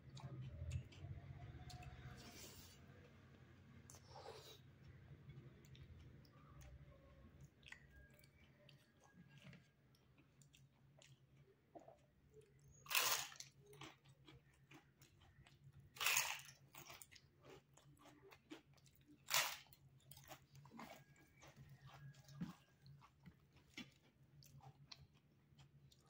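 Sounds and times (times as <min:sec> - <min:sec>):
loud crunches of crisp bites: 0:12.8 - 0:13.6, 0:16.0 - 0:17.0.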